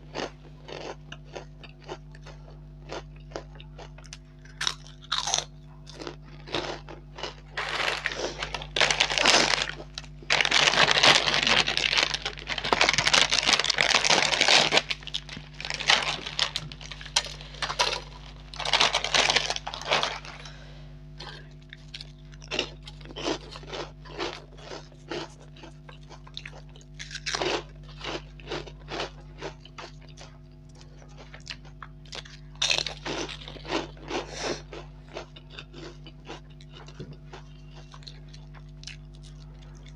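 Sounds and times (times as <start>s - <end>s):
crisp snacks crackling: 0.1s - 20.6s, 21.2s - 39.9s
plastic snack packet crinkling: 3.8s - 20.5s, 32.2s - 37.0s.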